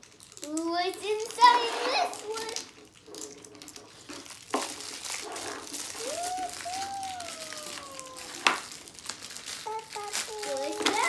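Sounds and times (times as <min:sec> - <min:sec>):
plastic wrapper crinkling: 0:00.0 - 0:01.5, 0:02.1 - 0:11.0
person saying ooh: 0:06.0 - 0:08.7.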